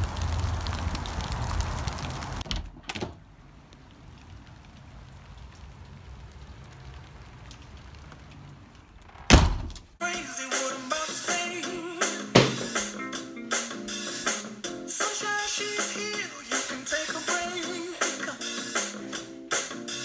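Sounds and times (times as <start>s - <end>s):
raindrops ticking: 0.0s - 2.4s, 3.3s - 9.1s
wind rumbling on microphone: 0.0s - 2.4s
light rain hiss: 0.0s - 2.5s, 3.2s - 10.0s.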